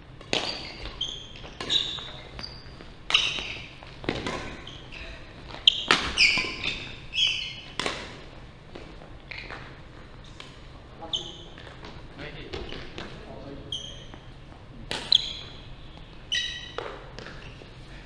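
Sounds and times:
rackets striking shuttlecock: 0:00.2 - 0:02.4, 0:03.0 - 0:04.8, 0:05.5 - 0:08.2, 0:14.9 - 0:15.5
shoes squeaking on wooden floor: 0:00.3 - 0:07.8, 0:11.0 - 0:17.8.

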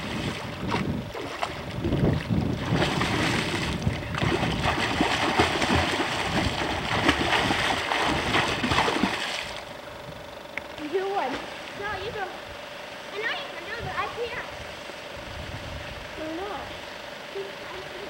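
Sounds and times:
children splashing in water: 0:02.6 - 0:09.7.

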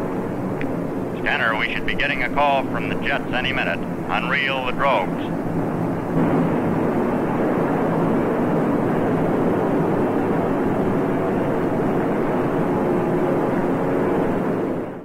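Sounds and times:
aircraft engines droning: 0:00.0 - 0:15.0.

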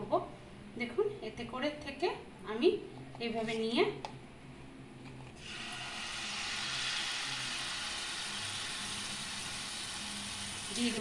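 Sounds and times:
batter sizzling in hot oil: 0:05.4 - 0:11.0.

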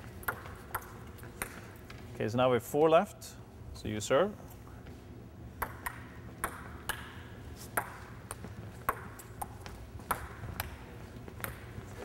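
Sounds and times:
table tennis ball clicking: 0:05.6 - 0:07.2.

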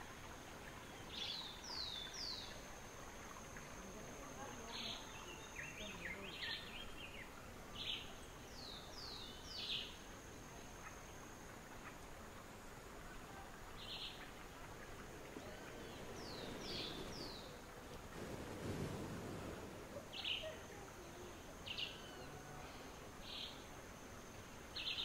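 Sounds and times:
high insect-like hum: 0:00.0 - 0:17.9, 0:18.7 - 0:25.0
wild birds calling: 0:13.9 - 0:20.6.

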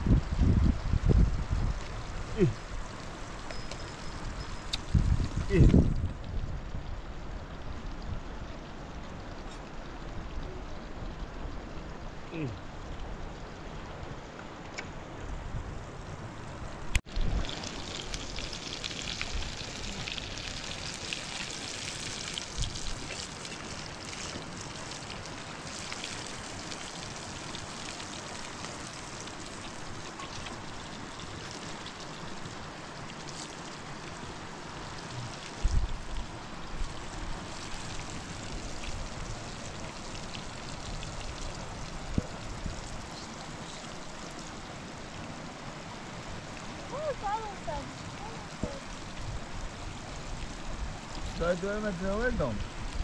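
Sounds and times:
food sizzling in oil: 0:17.1 - 0:31.9.

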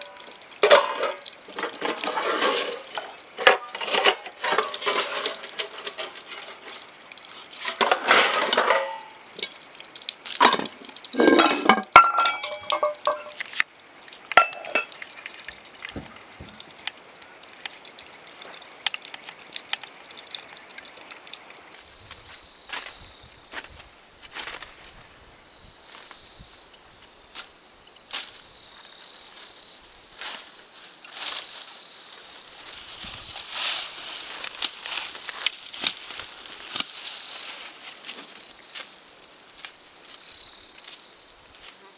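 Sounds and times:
dishes and utensils clinking: 0:00.0 - 0:06.6, 0:07.6 - 0:09.5, 0:10.4 - 0:13.4, 0:14.4 - 0:14.9
insects chirring: 0:00.0 - 0:41.9.

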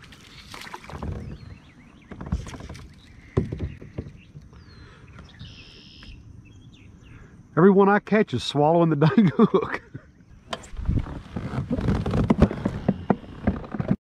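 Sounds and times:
knocks against boat: 0:02.1 - 0:04.4.

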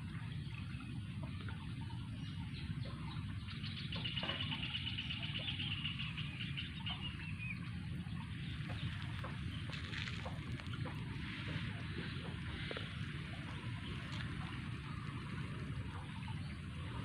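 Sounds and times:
low rumble: 0:04.9 - 0:17.0.

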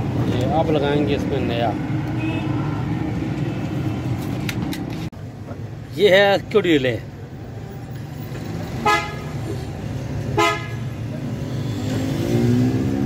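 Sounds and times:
car horn toots: 0:08.8 - 0:09.3, 0:10.4 - 0:10.8.

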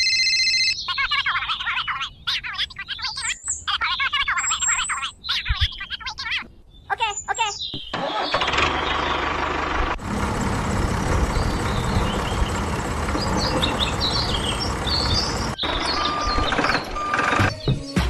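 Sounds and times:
birds chirping: 0:00.4 - 0:18.0
tractor engine running: 0:07.9 - 0:17.5.

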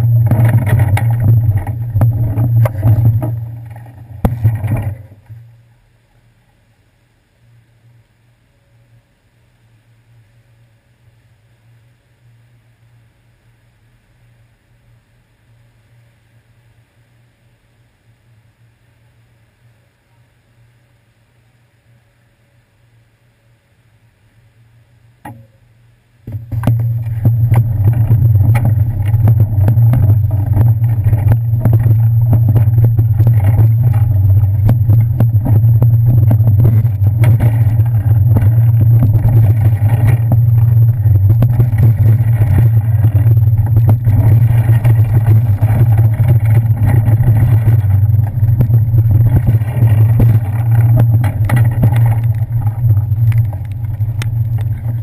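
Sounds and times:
bicycle riding rumble and rattle: 0:00.0 - 0:06.0, 0:26.3 - 0:55.0.

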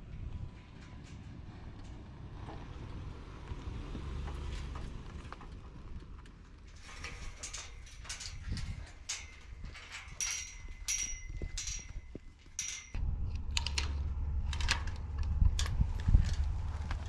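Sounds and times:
low wind rumble: 0:00.0 - 0:17.0
metal gate hardware clinking: 0:06.7 - 0:17.0.

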